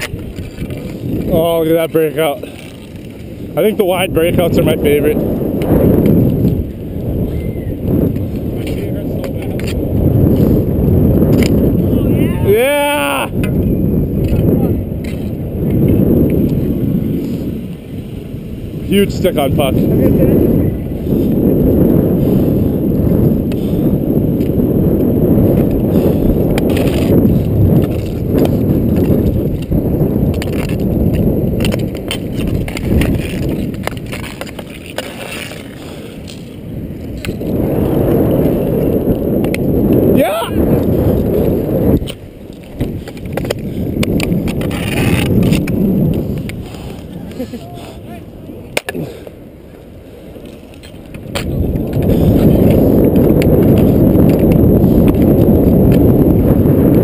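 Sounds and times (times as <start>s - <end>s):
hockey sticks and puck clicking: 0.0s - 1.3s, 8.6s - 9.8s, 11.3s - 11.6s, 26.5s - 27.2s, 27.8s - 36.5s, 41.9s - 47.5s, 48.7s - 49.0s, 50.4s - 52.8s
skate wheels rolling on asphalt: 0.0s - 57.0s.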